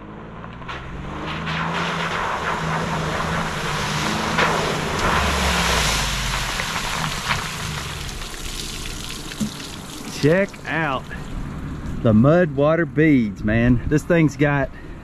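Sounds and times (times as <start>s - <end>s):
car engine under throttle: 0.0s - 12.1s
tyres churning mud and water: 1.6s - 11.5s.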